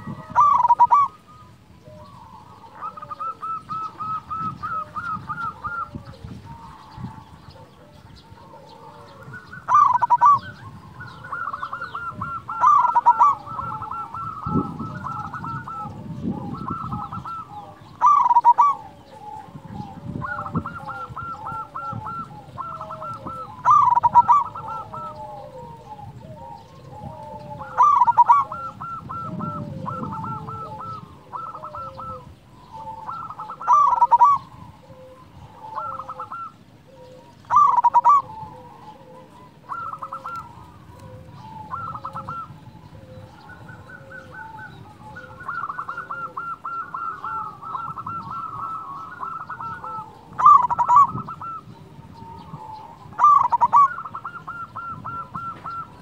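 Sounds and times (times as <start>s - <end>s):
dove cooing song: 0.0s - 56.0s.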